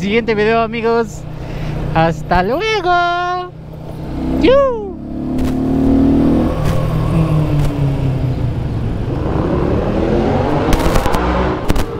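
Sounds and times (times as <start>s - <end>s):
motorcycle engine revving: 3.1s - 11.9s.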